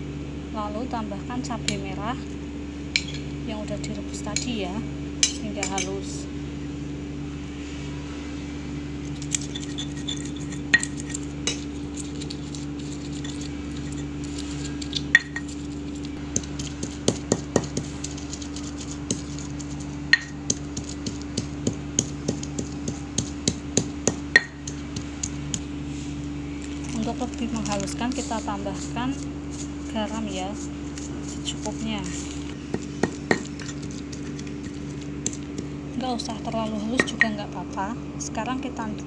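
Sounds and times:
steady low hum: 0.0s - 39.0s
stone pestle grinding in mortar: 9.2s - 25.6s, 26.8s - 37.2s.

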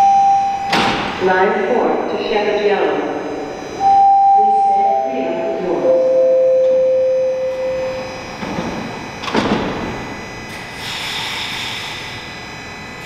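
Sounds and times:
train door chime: 0.0s - 0.9s, 3.7s - 10.4s
sliding doors closing thud: 8.4s - 10.0s
hiss: 10.5s - 12.2s.

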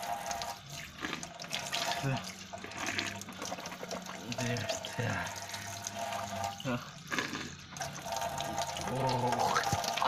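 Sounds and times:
tap water running into sink: 0.0s - 10.0s.

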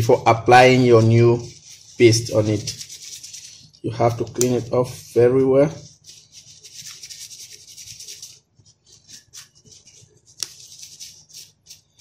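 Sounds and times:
tissue rubbing on processor: 0.0s - 12.0s.

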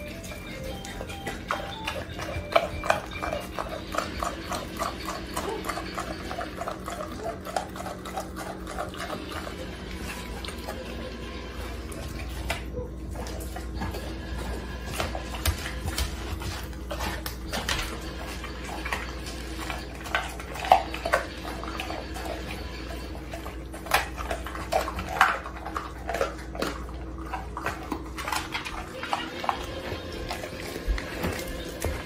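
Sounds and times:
teeth clicking on bone: 0.0s - 10.7s, 14.9s - 29.6s
dog licking and gnawing: 0.0s - 32.0s.

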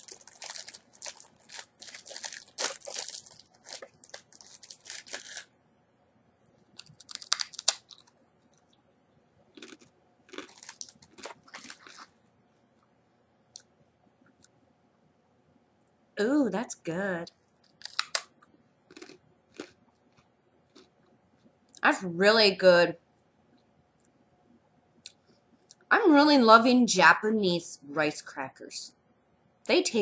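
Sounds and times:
rice cracker crunching: 0.0s - 5.5s, 6.7s - 8.7s, 9.5s - 12.2s, 17.7s - 18.3s, 18.9s - 20.9s.

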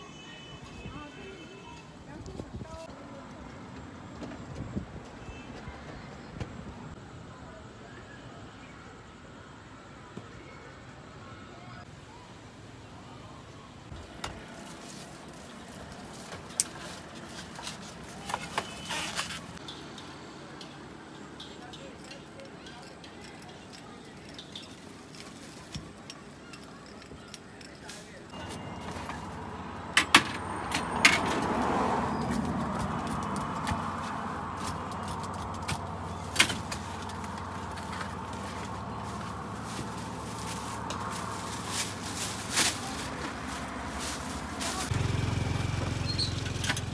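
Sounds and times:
traffic hum: 0.0s - 46.9s
wrapping rustling: 36.1s - 44.9s.

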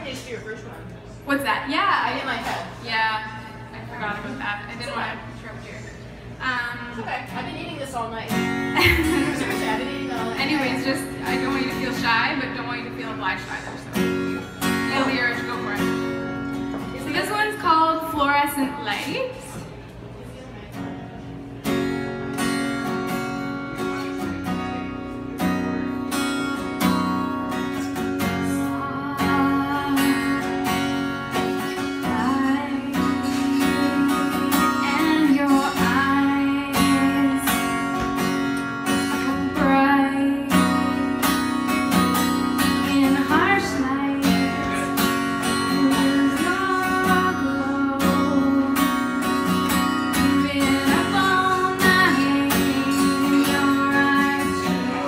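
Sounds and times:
acoustic guitar strumming: 7.2s - 19.4s, 20.7s - 55.0s
woman singing: 28.2s - 38.2s, 38.8s - 41.3s, 42.5s - 55.0s.

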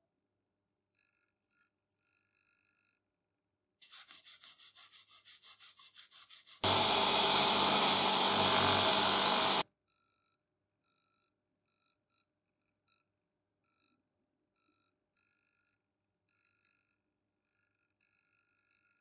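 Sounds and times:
scrubbing pad rubbing wire: 3.8s - 9.6s
power tool motor hum: 6.6s - 9.6s.

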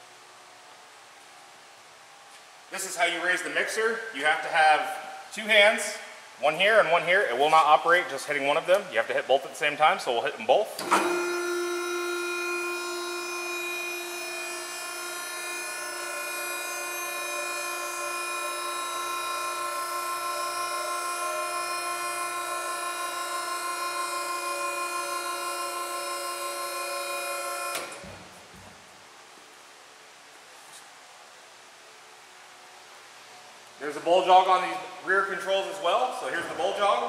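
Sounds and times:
mixer motor whine: 10.8s - 28.6s.

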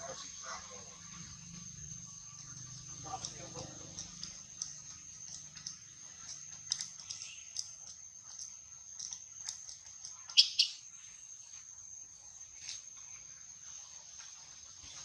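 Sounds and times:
steady high-pitched whine: 0.0s - 14.2s
high-pitched animal chirps: 10.2s - 10.8s.

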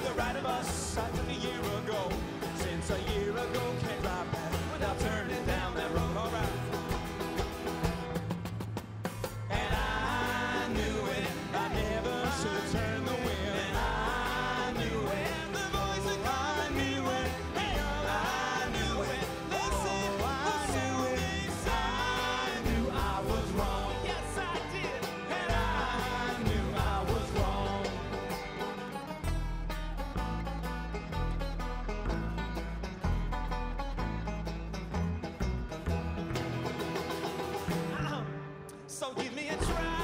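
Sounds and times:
male voices singing in harmony: 0.0s - 7.0s, 9.5s - 28.7s, 38.9s - 40.0s
acoustic guitar: 0.0s - 40.0s
banjo: 0.0s - 40.0s
upright bass: 0.0s - 40.0s.

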